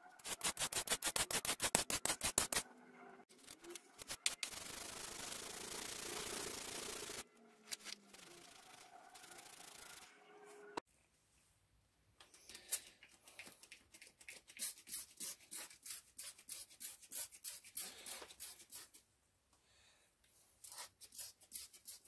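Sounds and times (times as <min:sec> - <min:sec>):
spray bottle squirting: 0:04.0 - 0:07.2.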